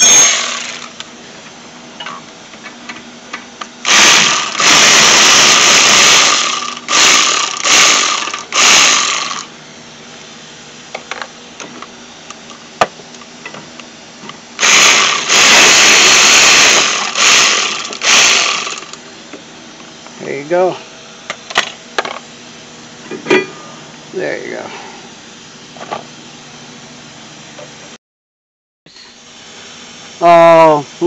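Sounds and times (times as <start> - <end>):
cordless power ratchet running: 0.0 - 1.1, 3.8 - 9.5, 14.6 - 19.0.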